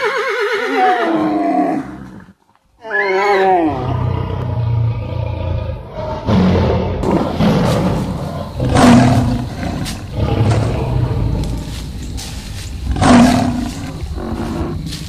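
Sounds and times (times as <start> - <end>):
lions roaring: 3.7 - 15.0.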